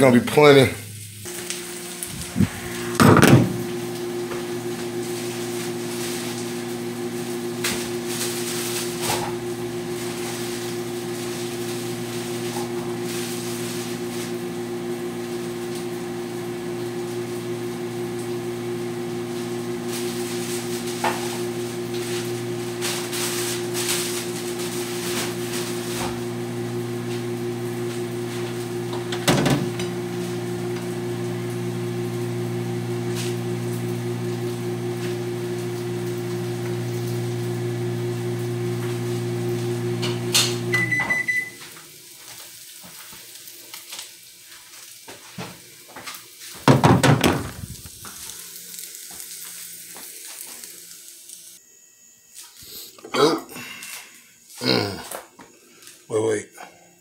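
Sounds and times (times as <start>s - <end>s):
electrical motor hum: 0.0s - 41.6s, 46.7s - 55.5s.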